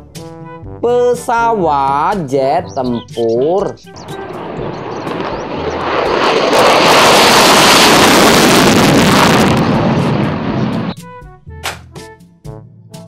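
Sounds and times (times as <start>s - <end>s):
jet engine roaring: 2.7s - 11.0s.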